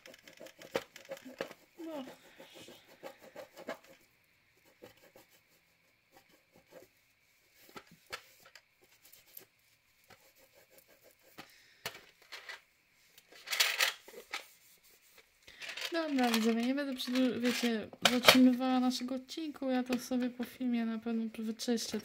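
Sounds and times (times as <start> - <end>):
wet wipe rubbing on tin: 0.0 - 4.0.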